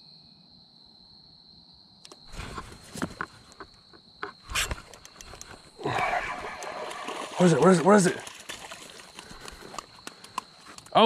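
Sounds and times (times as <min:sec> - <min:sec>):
insects droning: 0:00.0 - 0:11.0
handling fishing gear: 0:02.2 - 0:11.0.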